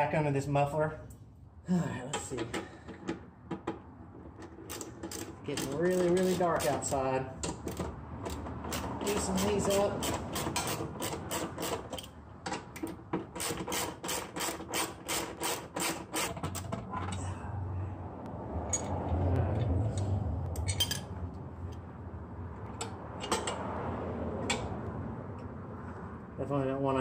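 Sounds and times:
scattered clicks and knocks: 2.2s - 17.2s
ratchet wrench clicking: 4.7s - 6.9s, 7.5s - 12.2s, 13.4s - 16.3s
low rumble: 16.9s - 22.6s.

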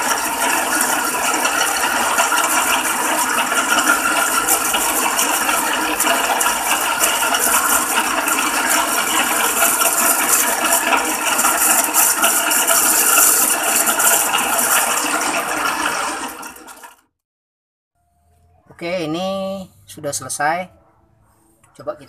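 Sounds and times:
metal lathe cutting tool scraping: 0.0s - 17.1s.

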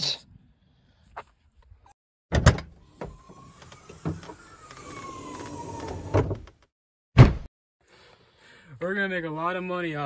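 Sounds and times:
loud thump: 7.2s - 7.5s.

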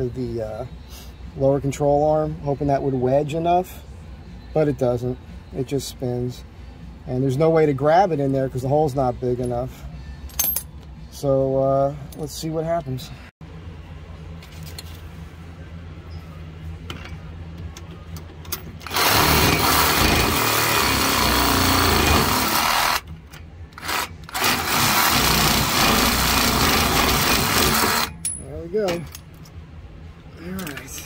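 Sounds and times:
power tool running: 18.8s - 23.1s, 23.8s - 28.1s.

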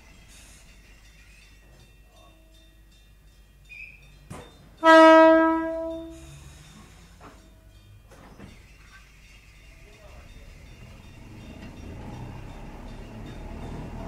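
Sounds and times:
train air horn: 4.8s - 6.3s.

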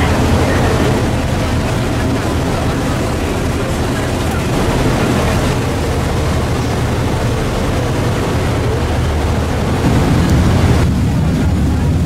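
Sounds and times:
boat engine drone: 0.0s - 12.0s
churning boat wake: 0.0s - 12.0s.

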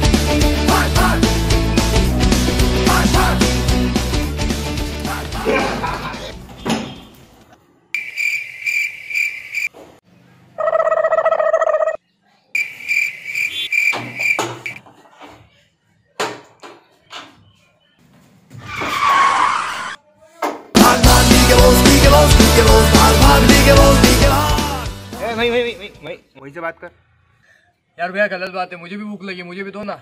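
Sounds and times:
cricket chirping: 8.0s - 9.7s, 12.6s - 14.8s.

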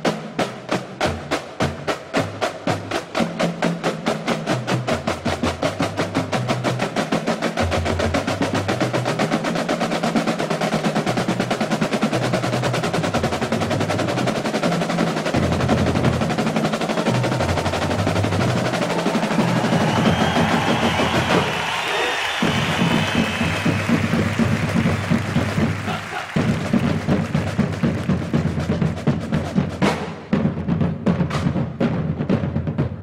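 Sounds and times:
side drums in unison rolls: 0.0s - 33.0s.

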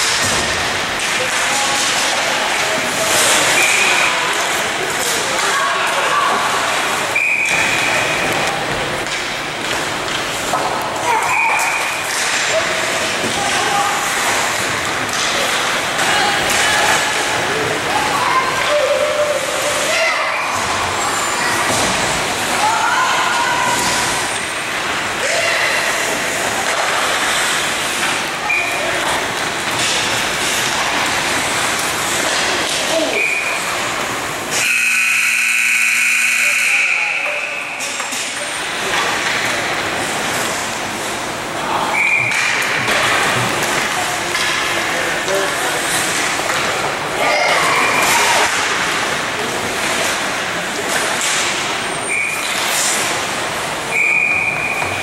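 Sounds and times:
skates scraping ice: 0.0s - 35.6s, 37.8s - 55.0s
referee's whistle: 7.2s - 8.0s, 41.9s - 42.4s, 53.9s - 55.0s
players shouting: 10.4s - 27.4s.

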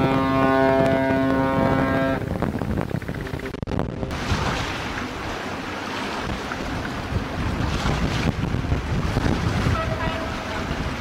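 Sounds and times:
sea washing: 0.0s - 11.0s
wind buffeting microphone: 0.0s - 11.0s.

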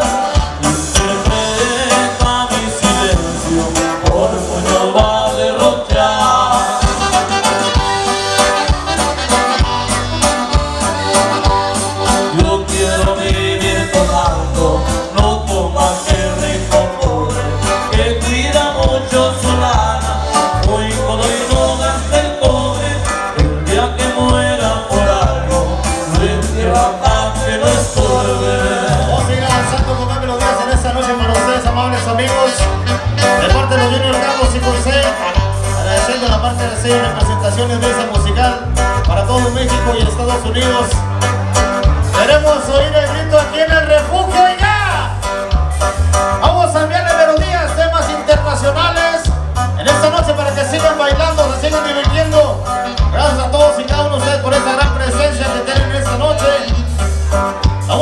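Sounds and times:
person singing: 0.0s - 8.7s, 11.1s - 38.6s
accordion lead: 0.0s - 58.0s
steady bass beat: 0.0s - 58.0s.

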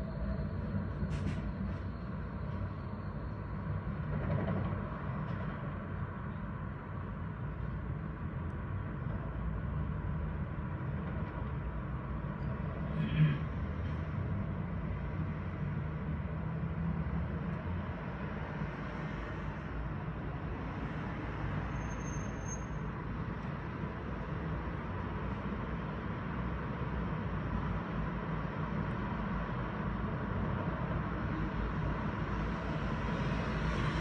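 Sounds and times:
street traffic hum: 0.0s - 34.0s
cars driving past: 12.4s - 34.0s.

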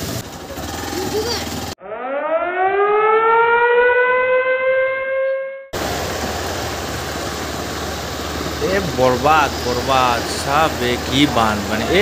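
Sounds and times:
synthetic siren-like tone: 1.8s - 5.8s
floodwater rushing: 5.8s - 12.0s.

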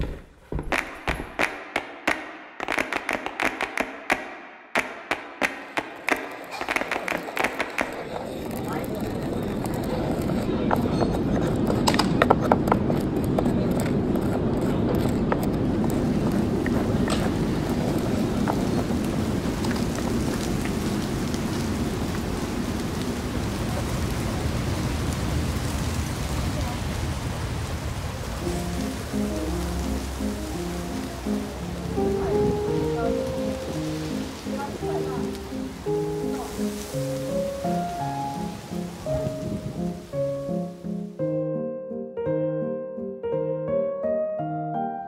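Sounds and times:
sharp taps and clicks: 0.0s - 8.6s
steady rain hiss: 5.8s - 10.7s, 15.6s - 41.2s.

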